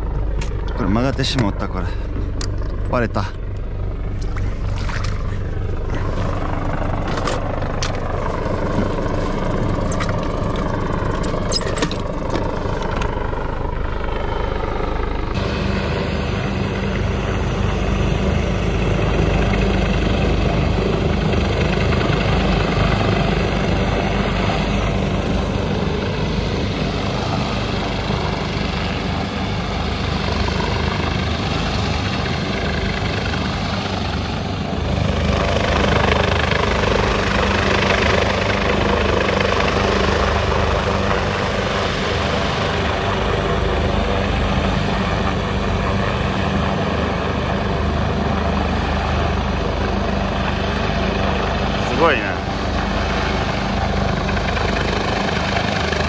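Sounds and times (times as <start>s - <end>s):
boat engine rumble: 0.0s - 15.4s
wind: 0.0s - 56.0s
water noise: 4.1s - 6.4s.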